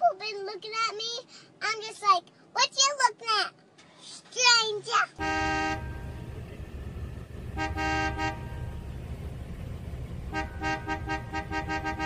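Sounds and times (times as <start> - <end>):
car horn honking: 5.2 - 9.2, 9.8 - 12.0
low steady rumble: 5.2 - 12.0.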